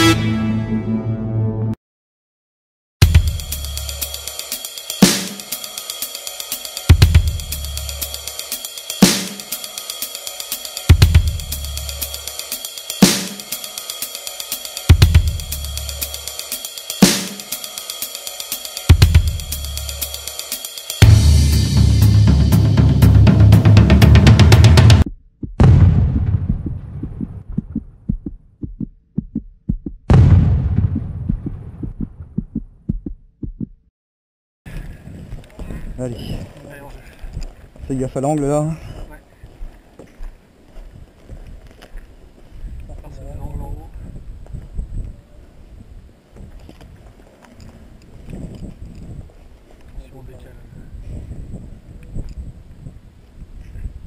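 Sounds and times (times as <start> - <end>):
low bass note: 0.0 - 1.8, 21.0 - 25.0, 25.6 - 27.8
deep booming hits: 3.0 - 3.5, 21.0 - 33.2
deep bass drum: 3.0 - 4.1, 6.9 - 8.0, 10.9 - 12.0, 14.9 - 16.0, 18.9 - 20.0, 21.0 - 33.9
hi-hat ticks: 3.0 - 21.1
cymbal crash: 3.0 - 25.0
low heartbeat-like thuds: 23.3 - 33.9.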